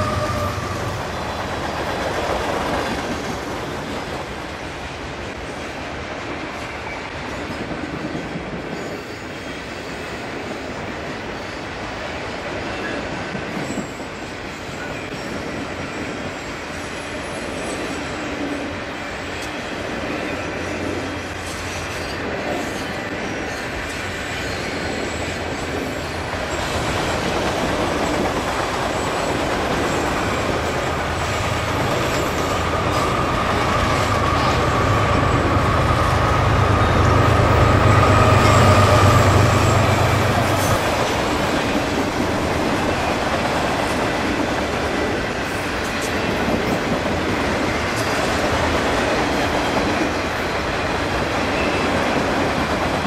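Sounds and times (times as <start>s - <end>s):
locomotive engine hum and whine: 0.0s - 4.6s, 16.8s - 53.0s
train wheels clacking on rails: 0.0s - 53.0s.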